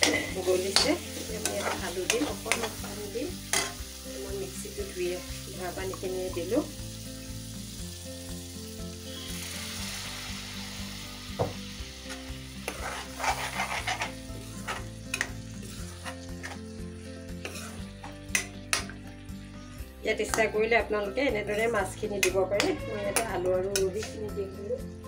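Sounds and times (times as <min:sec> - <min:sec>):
metal spoon scraping a pan: 0:00.0 - 0:03.8, 0:12.0 - 0:19.0, 0:21.5 - 0:24.2
sauce sizzling in a pan: 0:00.0 - 0:24.2.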